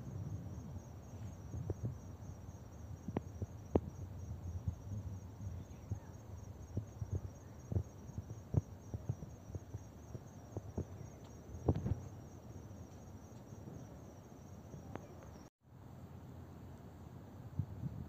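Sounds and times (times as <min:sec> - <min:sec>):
low rumble: 0:00.0 - 0:12.2
insects trilling: 0:00.0 - 0:15.5.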